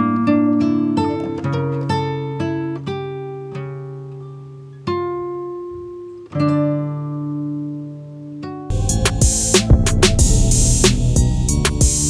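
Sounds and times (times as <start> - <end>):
plucked guitar music: 0.0 - 12.0.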